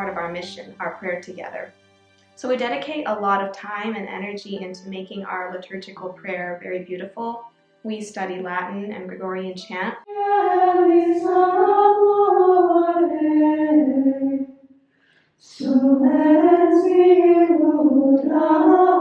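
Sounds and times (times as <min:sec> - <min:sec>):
women's choir chanting in unison: 0:10.0 - 0:14.4, 0:15.4 - 0:19.0.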